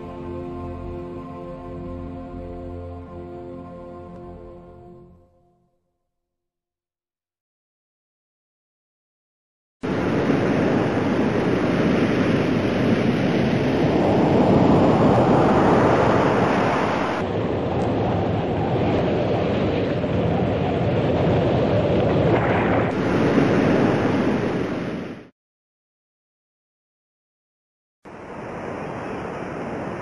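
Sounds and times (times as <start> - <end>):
waves crashing: 9.8 - 25.3, 28.1 - 30.0
wind rushing: 9.8 - 25.3.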